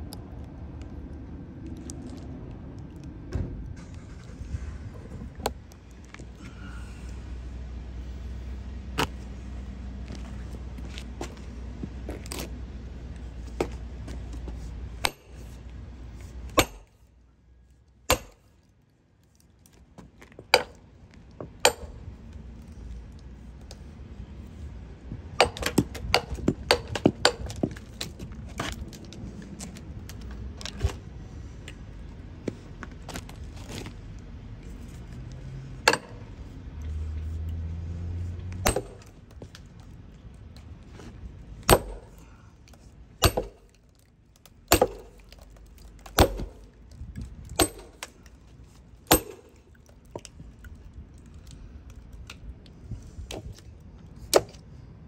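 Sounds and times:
low rumble: 0:00.0 - 0:10.6.

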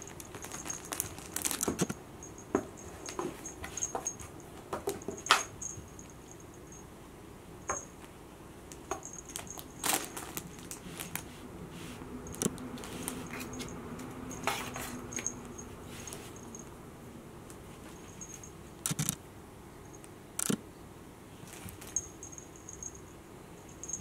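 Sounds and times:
metallic jingling of toy: 0:00.0 - 0:04.4, 0:23.7 - 0:24.0.

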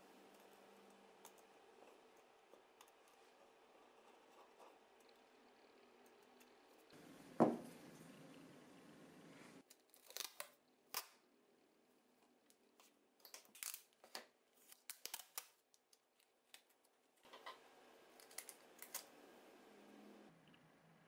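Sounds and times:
packing tape crackling: 0:13.2 - 0:16.7, 0:18.1 - 0:19.1.

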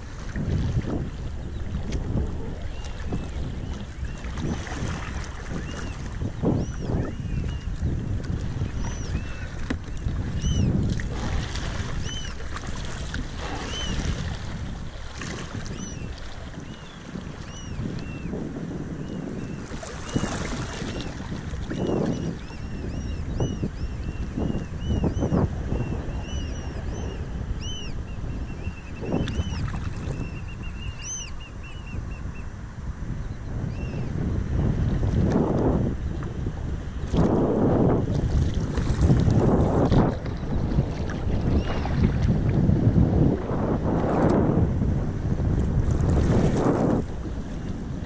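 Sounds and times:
paddle strokes splashing: 0:00.0 - 0:06.3, 0:07.4 - 0:18.0, 0:19.6 - 0:22.5, 0:38.0 - 0:42.6
wind buffeting microphone: 0:00.0 - 0:48.0
birds calling: 0:05.6 - 0:07.7, 0:08.6 - 0:10.7, 0:12.0 - 0:12.5, 0:13.6 - 0:14.1, 0:21.8 - 0:32.5.

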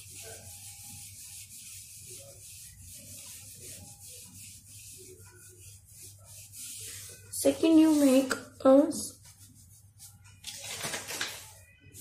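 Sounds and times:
pencil scratching on paper: 0:00.0 - 0:08.2.

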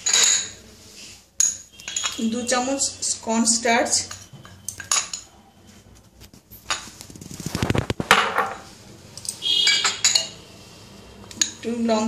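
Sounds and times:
glass clinking: 0:00.0 - 0:00.6, 0:01.4 - 0:02.2, 0:04.0 - 0:05.4, 0:09.2 - 0:10.4
metal spoon scraping glass bowl: 0:01.4 - 0:02.6, 0:09.3 - 0:10.4.

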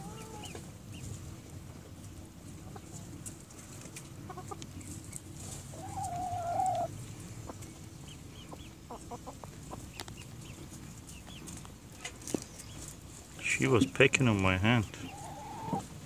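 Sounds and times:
hens clucking softly: 0:00.0 - 0:16.0
long drawn-out hen call: 0:05.7 - 0:06.9, 0:15.1 - 0:15.9.

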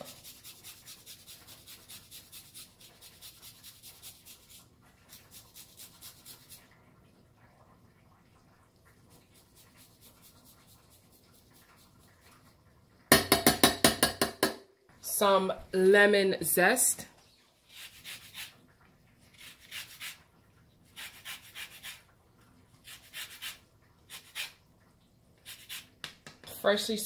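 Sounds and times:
garlic rasping on grater: 0:00.0 - 0:06.6, 0:19.3 - 0:20.2, 0:20.9 - 0:22.0, 0:22.8 - 0:24.6, 0:25.4 - 0:25.9.

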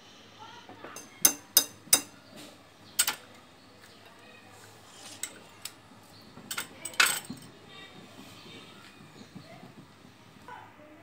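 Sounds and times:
metal utensils clinking on bowls: 0:05.0 - 0:05.8, 0:06.5 - 0:07.6.

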